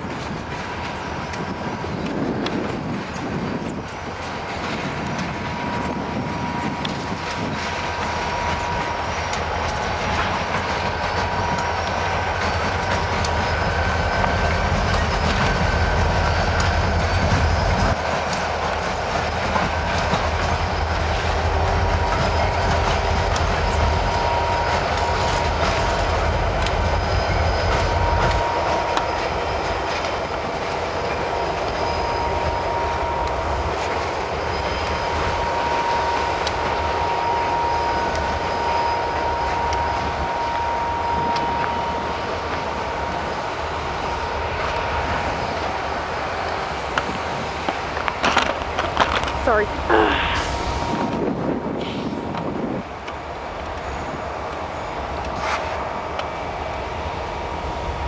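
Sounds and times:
wheels clicking over rail joints: 0:00.0 - 0:31.8, 0:46.9 - 0:49.9
diesel locomotive engines rumbling: 0:00.0 - 0:58.0.

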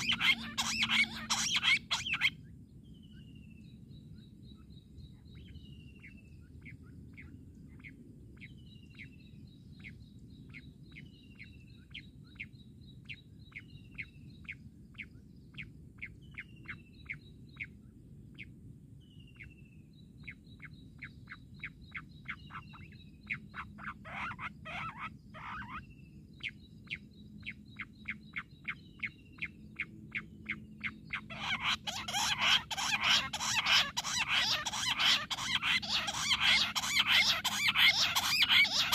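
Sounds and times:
quail calling: 0:00.0 - 0:02.3, 0:22.3 - 0:25.8, 0:31.1 - 0:38.9.

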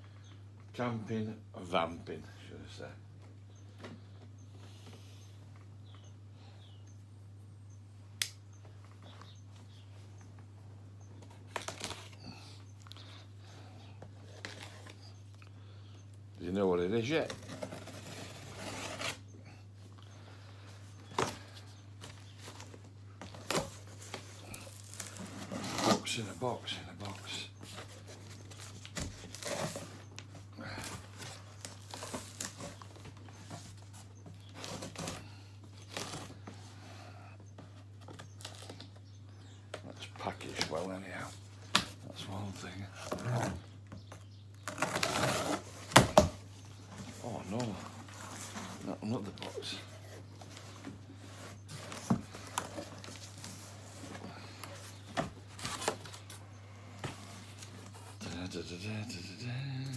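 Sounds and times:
faint low hum: 0:00.0 - 0:59.9
packing tape tearing: 0:11.5 - 0:12.2, 0:30.9 - 0:32.9, 0:44.5 - 0:46.3
cardboard scraping and rustling: 0:16.9 - 0:19.3, 0:21.1 - 0:26.4, 0:27.0 - 0:30.2, 0:44.6 - 0:58.4.

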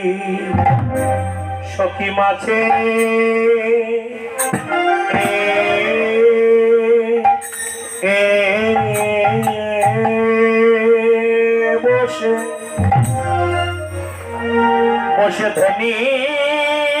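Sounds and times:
man singing devotional song: 0:00.0 - 0:13.0, 0:15.0 - 0:17.0
musical accompaniment: 0:00.0 - 0:17.0
drum strokes: 0:00.5 - 0:01.8, 0:04.4 - 0:05.7, 0:12.4 - 0:14.6
jingling percussion: 0:07.3 - 0:10.7, 0:12.2 - 0:14.5.

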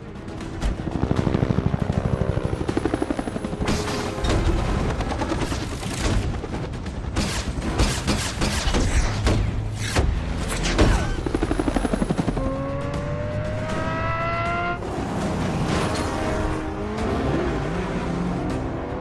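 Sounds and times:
music: 0:00.0 - 0:19.0
sports car engine revving: 0:12.4 - 0:19.0.

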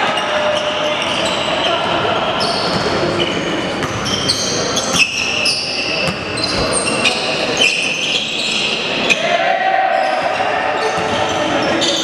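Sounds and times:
sneakers squeaking on hardwood: 0:00.1 - 0:09.2, 0:10.1 - 0:12.0
basketball bouncing: 0:03.8 - 0:04.1, 0:06.0 - 0:06.6.

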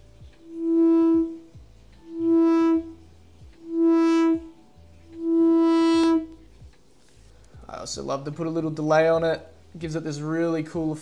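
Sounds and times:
synthesizer note with sweeping filter: 0:00.4 - 0:06.4.

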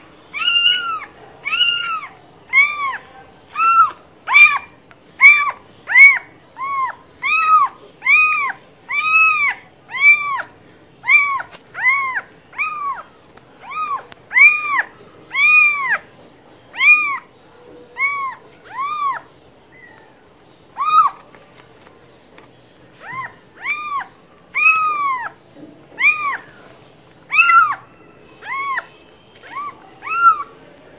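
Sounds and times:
cat meowing: 0:23.0 - 0:25.4, 0:26.0 - 0:26.6, 0:27.3 - 0:30.5.

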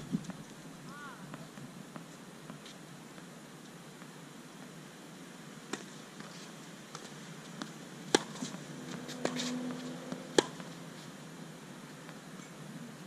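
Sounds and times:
footsteps on court: 0:05.8 - 0:11.1
ball bouncing: 0:07.0 - 0:10.7
tennis ball racket hits: 0:07.6 - 0:10.7.

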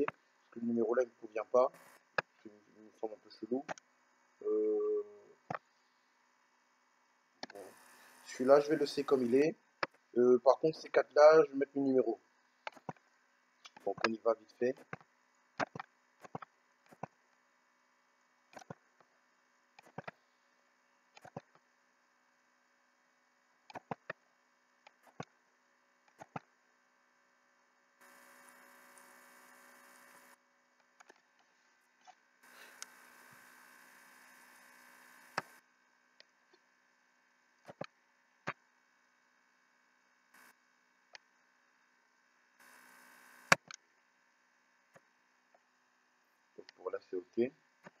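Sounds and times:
low electrical hum: 0:00.0 - 0:48.0
steady hiss: 0:07.5 - 0:09.5
computer mouse clicking: 0:18.5 - 0:18.8, 0:19.8 - 0:20.2, 0:21.2 - 0:21.5, 0:23.7 - 0:24.2, 0:26.1 - 0:26.5.

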